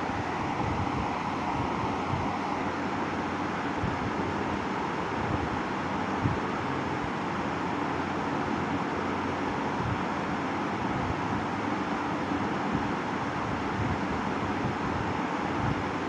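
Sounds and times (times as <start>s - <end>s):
shop interior hiss and rumble: 0.0s - 16.0s.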